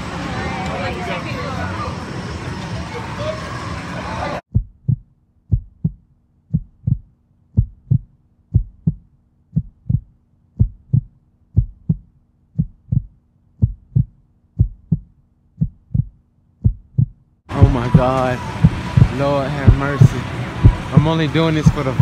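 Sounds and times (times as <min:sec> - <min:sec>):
heartbeat thumps: 0:04.5 - 0:21.8.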